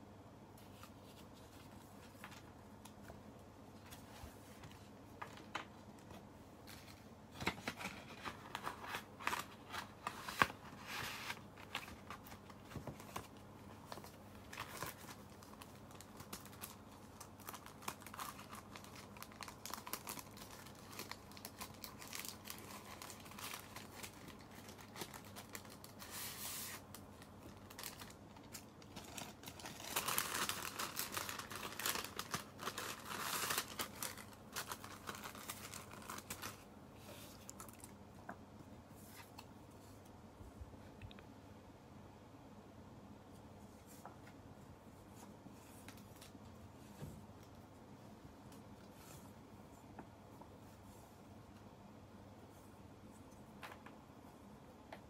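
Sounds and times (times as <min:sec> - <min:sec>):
paper rustling and crinkling: 0:00.6 - 0:03.1, 0:03.8 - 0:37.9.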